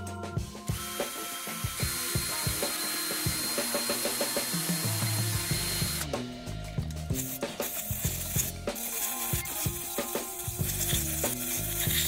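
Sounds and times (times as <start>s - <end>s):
drill motor whine: 0.7s - 6.1s
wire brush scrubbing metal: 7.0s - 12.0s.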